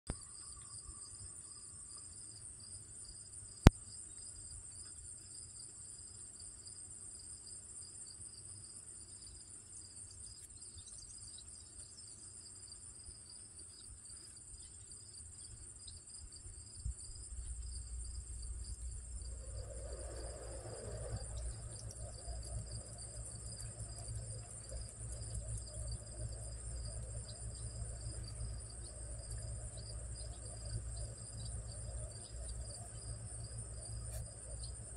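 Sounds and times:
insects trilling: 0.1 - 34.9
low rumble: 16.4 - 34.9.

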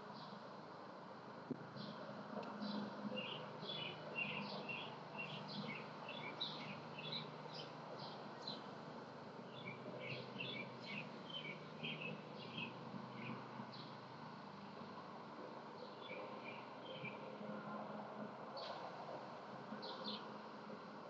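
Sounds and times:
small birds chirping: 1.8 - 8.7, 9.5 - 14.1, 15.8 - 17.2, 19.8 - 20.2.

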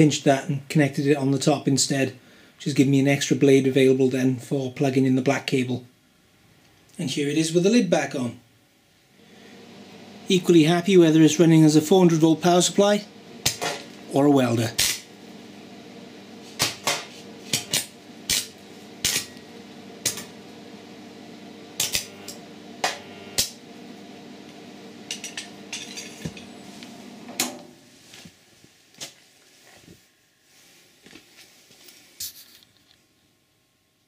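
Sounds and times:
welder transformer humming: 9.0 - 28.3.

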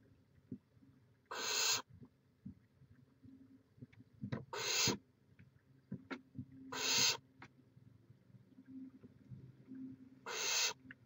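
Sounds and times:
owls hissing: 1.3 - 1.8, 4.5 - 5.0, 6.7 - 7.2, 10.2 - 10.8.

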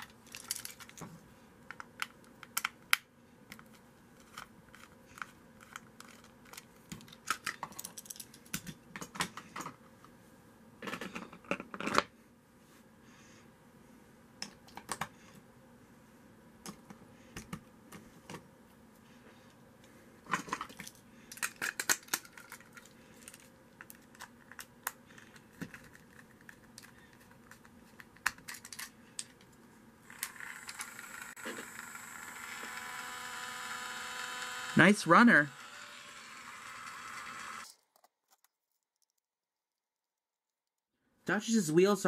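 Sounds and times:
plastic clicks and clatters: 1.7 - 9.8, 20.3 - 29.5
electric motor whirring: 30.1 - 37.7.

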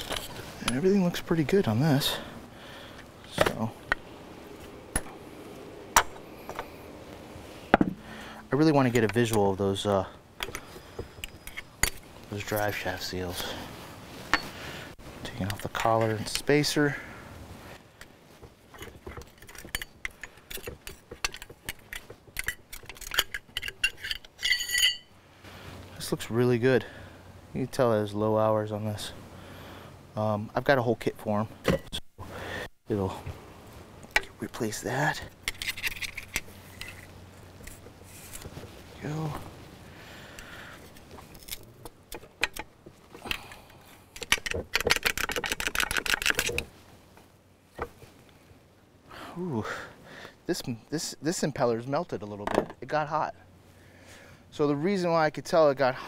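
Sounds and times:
metallic clinks and scrapes: 10.4 - 12.8, 18.7 - 25.2, 35.4 - 38.8
rapid clicking and scraping: 41.4 - 46.7.

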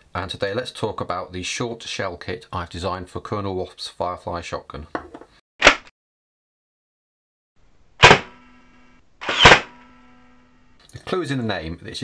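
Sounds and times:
steady ringing tone: 9.6 - 10.8.

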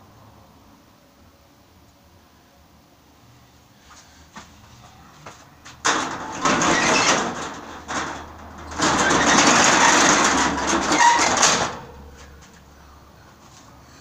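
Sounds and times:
steel shutter rattling rolling up: 5.8 - 12.6.

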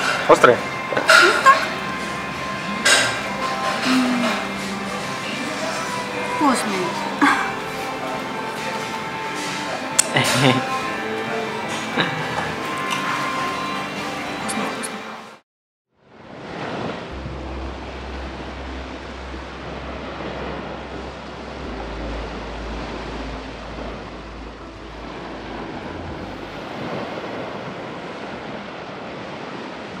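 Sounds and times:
low hum: 16.0 - 29.8.

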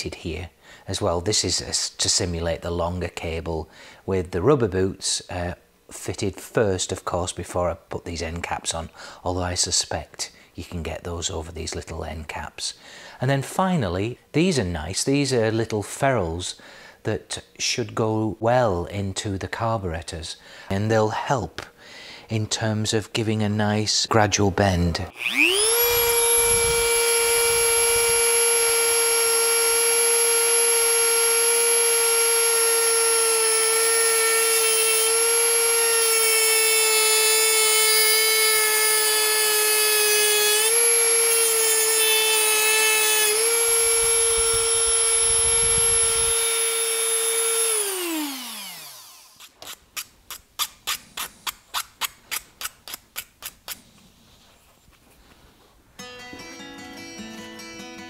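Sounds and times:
rotary tool cutting wheel whine: 25.1 - 49.6
filing scraping strokes: 46.5 - 54.6.

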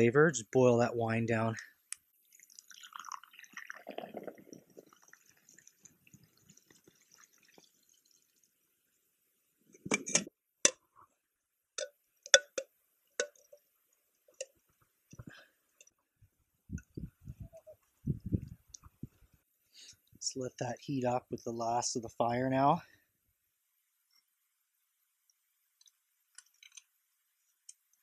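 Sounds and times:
water trickling onto snow: 2.2 - 8.6
metal pot clinks and knocks: 9.8 - 10.8, 11.8 - 13.6.

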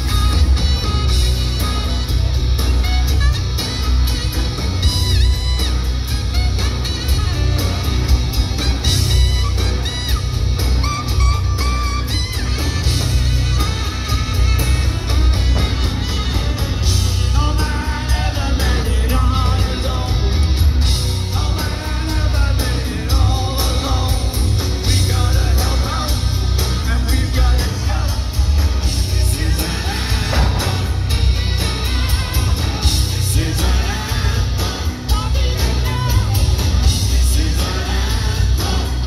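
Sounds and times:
heavy bass: 0.0 - 39.0
live rock band playing: 0.0 - 39.0
man singing into a microphone: 17.3 - 20.5, 21.3 - 30.7.

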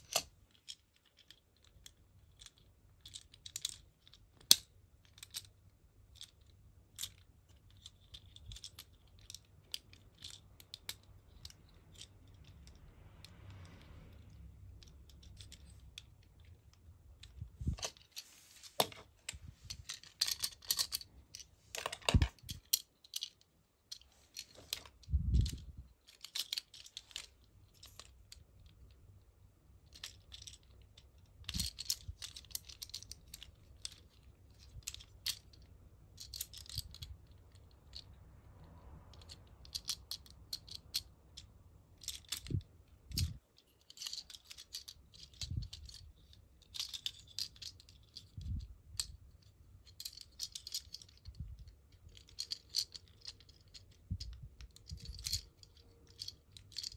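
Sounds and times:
plastic toy parts clicking: 0.0 - 12.8, 19.7 - 28.9, 29.8 - 38.1, 39.1 - 56.9.

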